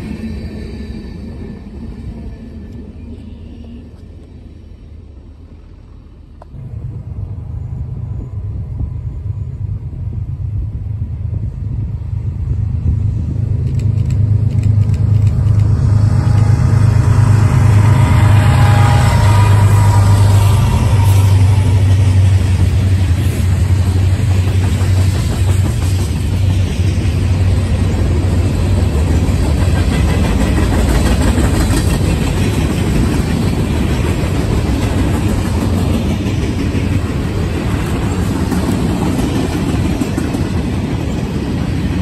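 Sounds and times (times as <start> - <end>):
train wheels on rails: 0.0 - 42.0
locomotive engine rumble: 3.8 - 42.0.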